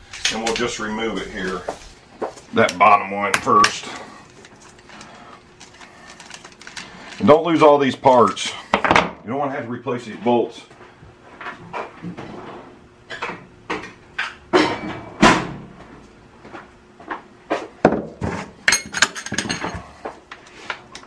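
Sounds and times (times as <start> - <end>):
tools knocking on a workbench: 17.8 - 18.5.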